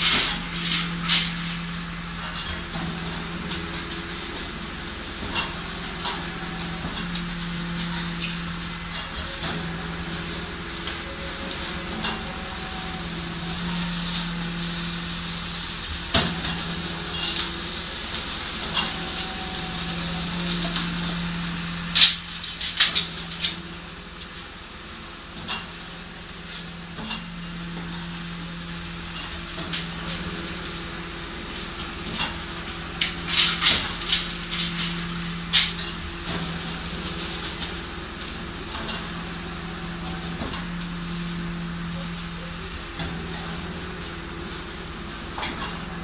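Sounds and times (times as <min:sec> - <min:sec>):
rubbish bags rustling: 0:00.0 - 0:23.9
garbage truck humming: 0:00.0 - 0:46.0
metal roll cages clanking: 0:00.0 - 0:46.0.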